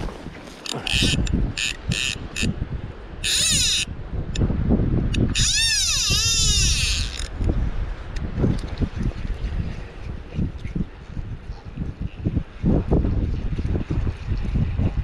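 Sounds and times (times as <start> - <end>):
fishing reel clicker buzzing: 0.6 - 2.5, 3.2 - 3.9, 5.1 - 7.3.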